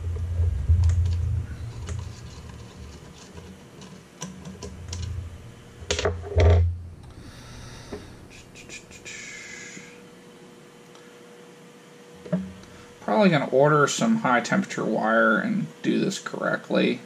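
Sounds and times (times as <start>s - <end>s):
dull low thumps: 0.0s - 3.2s, 4.7s - 7.4s
small clicks and rattles: 0.1s - 5.2s.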